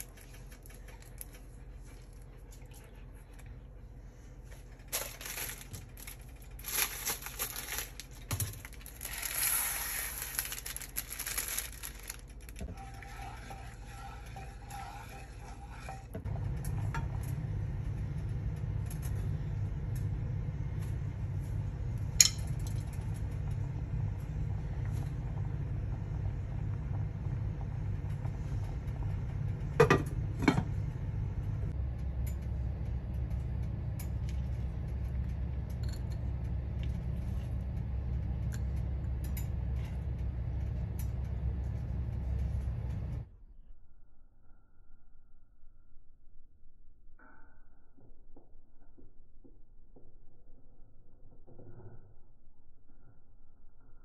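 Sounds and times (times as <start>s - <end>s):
rustling and scraping in saucepan: 0.0s - 17.4s
low hum: 0.0s - 54.0s.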